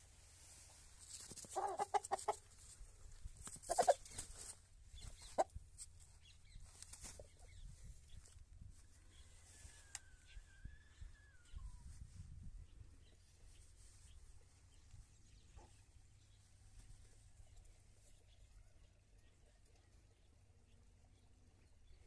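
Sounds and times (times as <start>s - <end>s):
rooster clucking: 1.5s - 2.4s, 3.6s - 4.1s.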